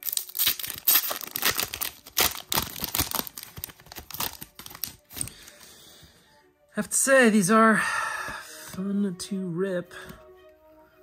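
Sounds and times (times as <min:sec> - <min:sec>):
foil pack tearing and crinkling: 0:00.0 - 0:05.3.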